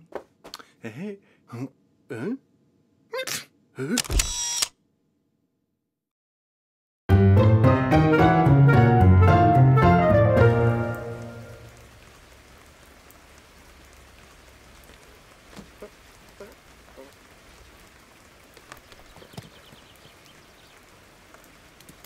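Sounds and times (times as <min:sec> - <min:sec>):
rain falling: 0:09.3 - 0:22.0.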